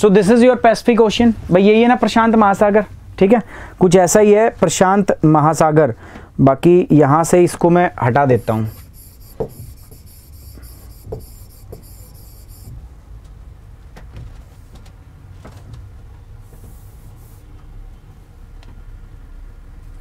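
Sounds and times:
stylus tapping on whiteboard screen: 8.3s - 12.8s.

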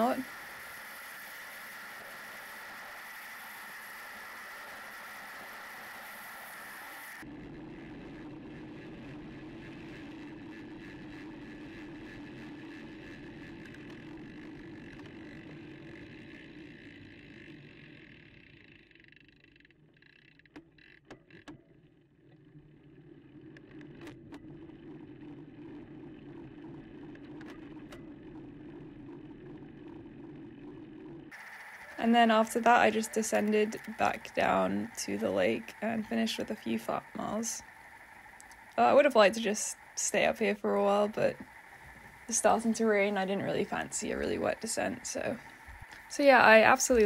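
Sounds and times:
steady wind: 0.0s - 19.0s, 23.0s - 47.0s
bicycle tyres on wet road: 0.0s - 21.0s, 22.2s - 40.0s, 40.6s - 47.0s
sharp clicks: 37.6s - 38.8s.

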